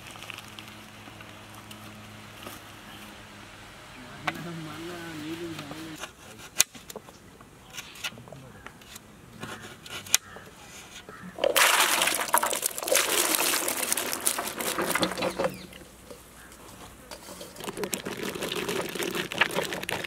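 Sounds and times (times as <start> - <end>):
vegetable pieces splashing into water: 11.4 - 15.7.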